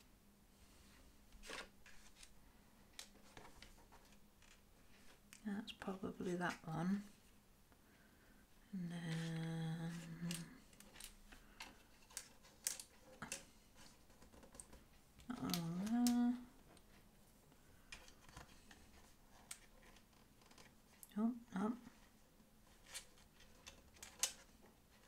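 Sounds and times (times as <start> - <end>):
person humming: 8.7 - 10.6, 15.2 - 16.6.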